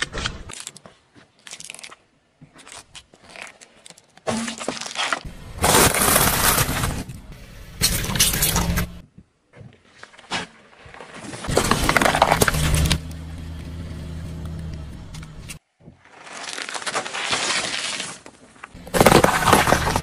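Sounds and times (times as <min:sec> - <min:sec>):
tyre crushing plastic containers: 0:02.5 - 0:07.2, 0:11.4 - 0:13.0, 0:16.5 - 0:20.0.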